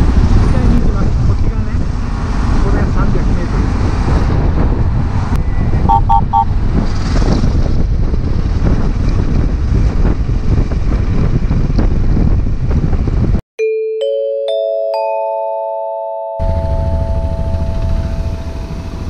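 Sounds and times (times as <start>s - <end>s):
wind rush on microphone: 0.0s - 13.4s
short beeps: 5.9s - 6.5s
motorcycle engine running: 16.4s - 19.0s.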